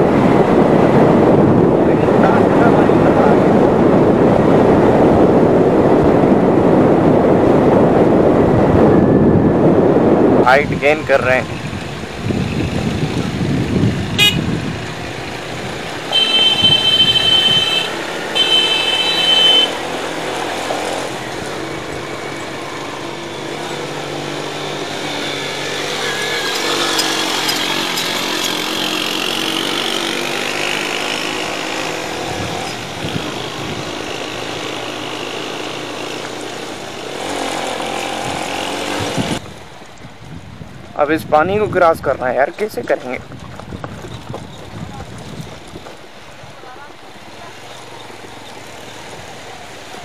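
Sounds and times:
road and wind noise: 0.0s - 50.0s
motorcycle engine running: 11.4s - 40.0s
vehicle horn honking: 14.2s - 14.6s, 16.0s - 20.0s.

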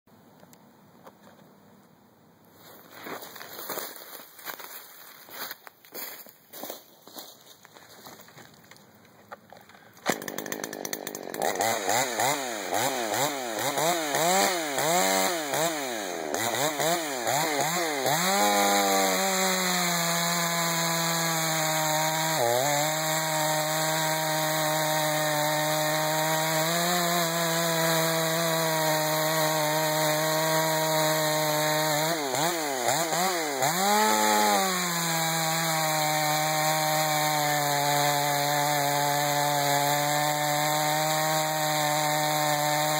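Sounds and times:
chainsaw revving and cutting wood: 10.0s - 42.9s.

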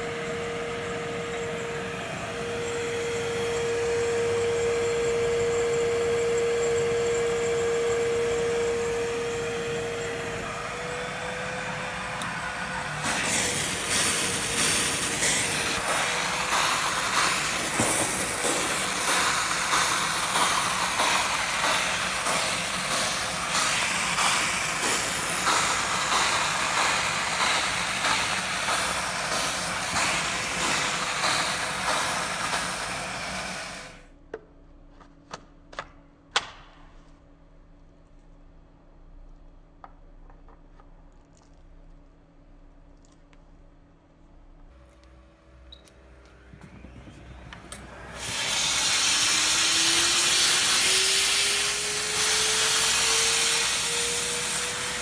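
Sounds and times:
steam cleaner humming: 0.0s - 34.0s, 45.2s - 55.0s
steam hissing and vacuum suction: 8.2s - 34.0s, 46.7s - 55.0s.

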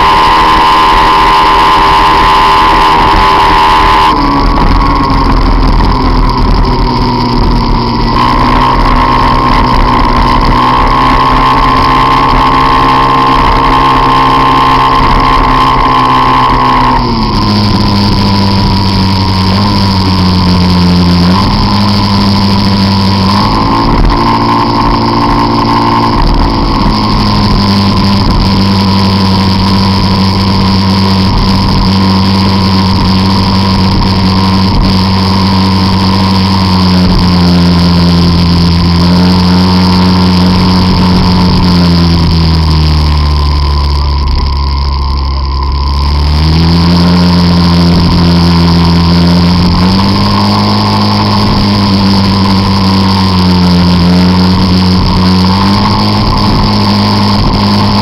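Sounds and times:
scooter engine running hard: 0.0s - 58.0s.

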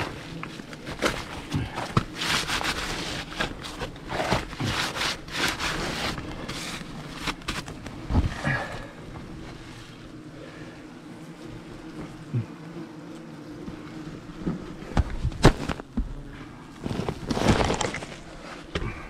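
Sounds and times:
rustling of papery debris: 0.0s - 8.8s, 16.8s - 18.7s
crinkly foil insulation: 0.0s - 10.0s, 16.7s - 18.7s.

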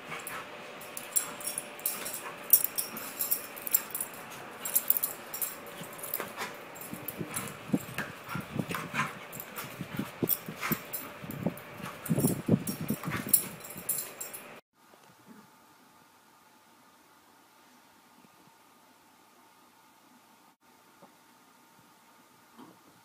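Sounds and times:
paws scuffling and thumping: 0.0s - 14.4s
collar tags jingling: 0.0s - 14.6s.

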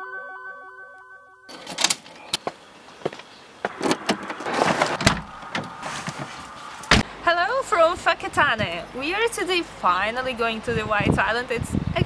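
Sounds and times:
rustling: 1.5s - 7.0s.

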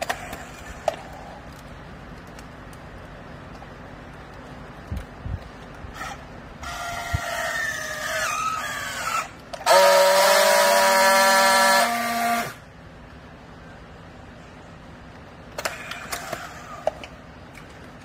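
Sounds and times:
steady welding buzz: 0.0s - 18.0s
tensioning motor whine: 5.9s - 12.7s.

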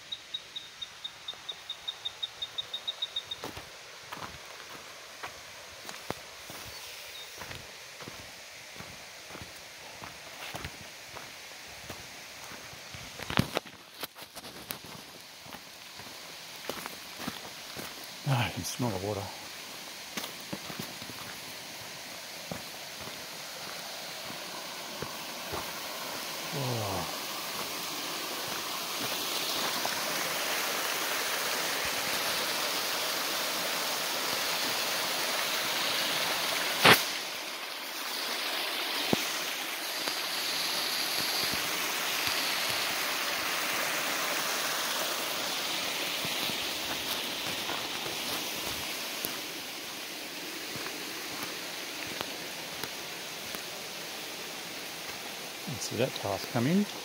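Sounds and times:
creek and waterfall rushing: 0.0s - 57.0s
footsteps on rocky track: 3.4s - 18.1s, 20.1s - 25.8s, 28.4s - 30.0s, 46.2s - 49.4s, 50.7s - 53.6s.

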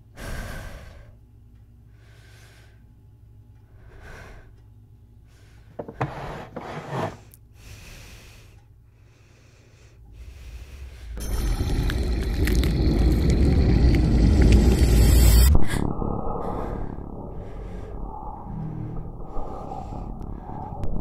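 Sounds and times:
woman breathing heavily: 0.0s - 1.2s, 1.8s - 3.0s, 3.6s - 6.0s, 7.4s - 11.2s, 16.4s - 21.0s
loud low rumble: 10.2s - 21.0s.

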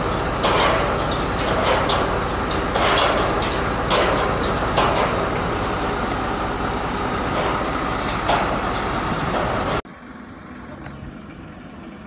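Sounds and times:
sharp clicks and knocks: 0.0s - 9.8s
crane engine running: 0.0s - 12.0s.

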